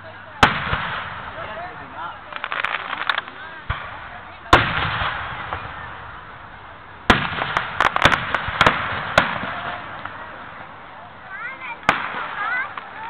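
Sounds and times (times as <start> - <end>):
firework bangs: 0.4 - 13.0
quick firework pops: 2.3 - 5.7, 7.1 - 10.2, 11.8 - 13.0.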